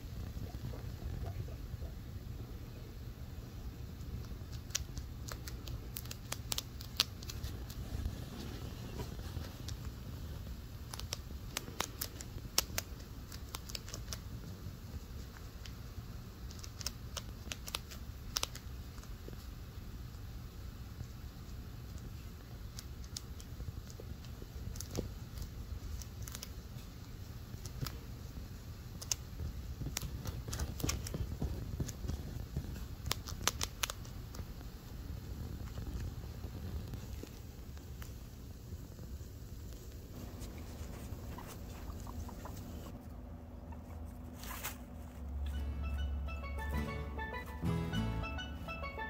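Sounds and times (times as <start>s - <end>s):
chinchilla crunching a treat: 3.6s - 42.8s.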